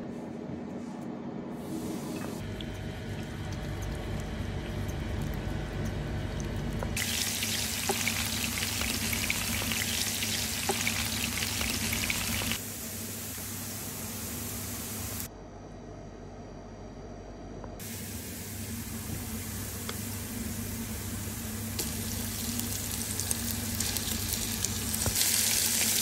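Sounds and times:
onions sizzling in oil: 7.0 - 15.3, 17.8 - 26.0.

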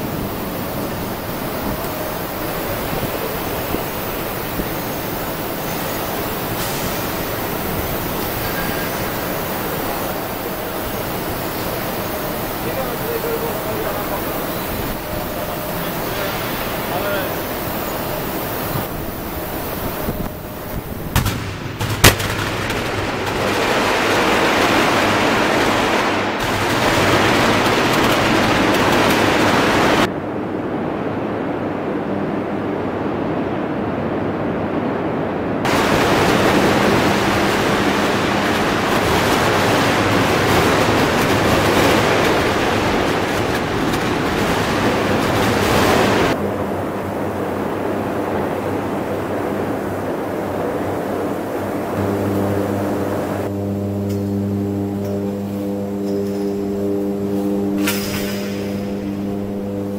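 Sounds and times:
arc furnace crackling roar: 0.0 - 34.2, 35.4 - 59.9
sharp crack: 21.2 - 29.6.

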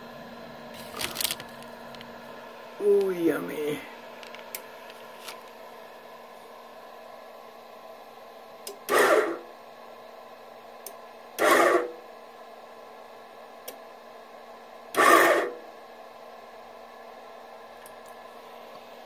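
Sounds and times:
steady hum: 0.0 - 19.0
electric press motor running: 8.5 - 9.7, 11.1 - 12.1, 14.8 - 15.7.

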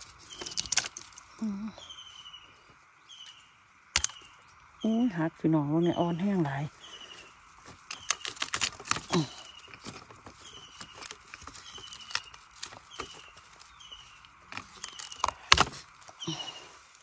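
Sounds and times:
dry bamboo clicking and cracking: 0.0 - 1.7, 3.2 - 4.8, 6.8 - 17.0.

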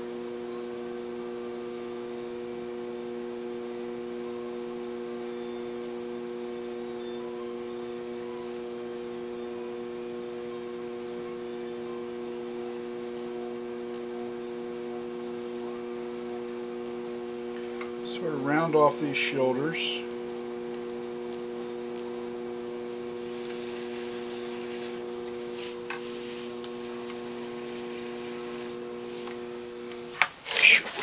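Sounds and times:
potter's wheel motor hum: 0.0 - 31.0.

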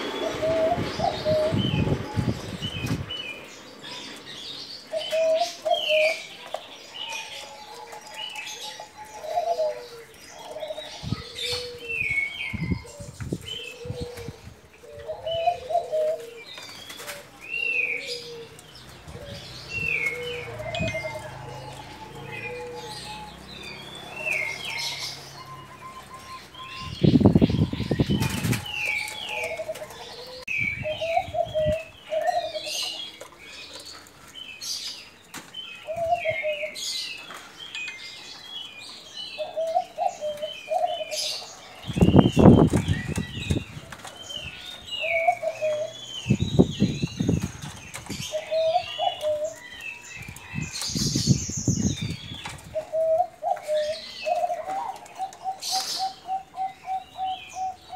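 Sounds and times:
doves cooing: 0.0 - 57.9
small birds chirping: 0.0 - 57.9.

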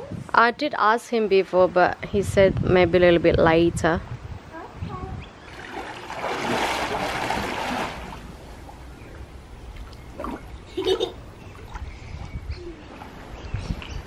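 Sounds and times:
water splashing and lapping: 5.4 - 14.0
child diving into pool: 5.5 - 8.8.

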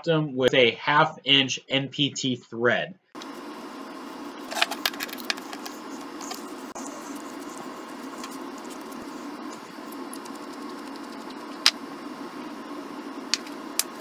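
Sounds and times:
steady hiss: 3.2 - 14.0.

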